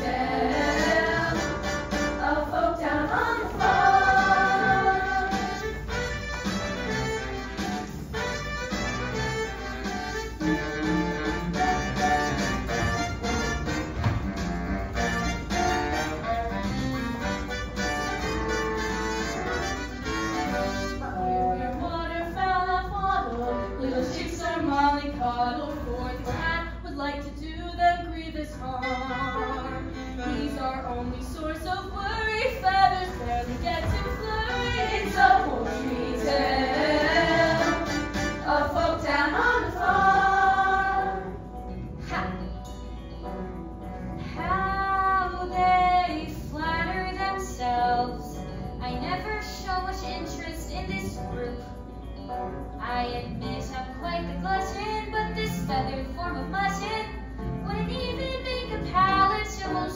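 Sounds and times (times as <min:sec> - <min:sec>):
young cast singing: 0:00.0 - 0:05.8, 0:32.8 - 0:41.4
bouncy musical theatre music: 0:00.0 - 0:59.9.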